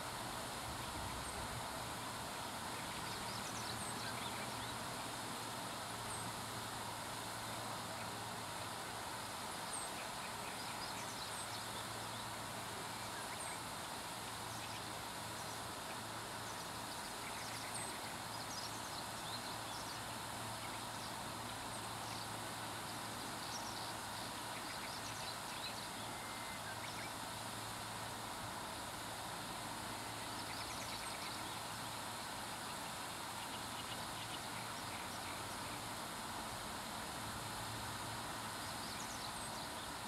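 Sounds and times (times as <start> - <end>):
faint bird chirps: 22.9 - 27.2.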